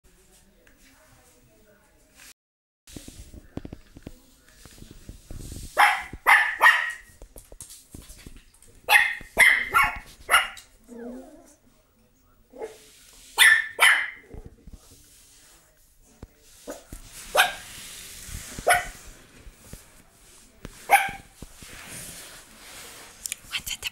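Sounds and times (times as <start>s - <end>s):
small dogs barking: 5.8s - 7.1s, 8.9s - 10.7s, 13.4s - 14.3s, 16.7s - 17.7s, 18.6s - 19.0s, 20.9s - 21.3s.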